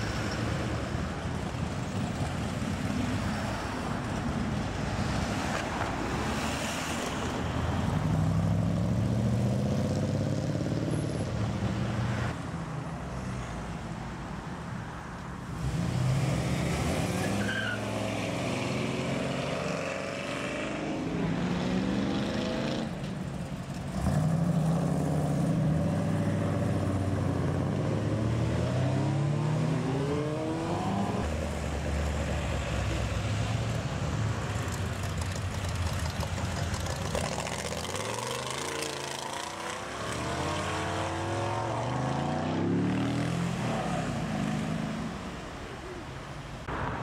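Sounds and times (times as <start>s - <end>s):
cars accelerating past: 15.5s - 23.0s, 23.8s - 33.5s, 34.4s - 45.5s.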